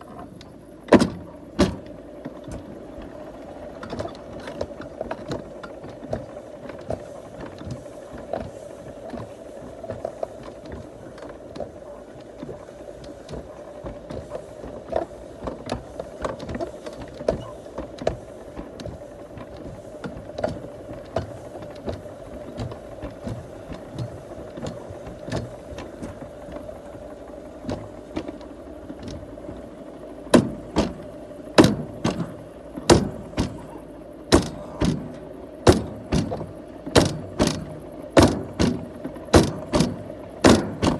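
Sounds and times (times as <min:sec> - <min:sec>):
train motor hum: 0:00.0 - 0:40.9
loud regular clunks: 0:00.1 - 0:03.2, 0:03.8 - 0:40.9.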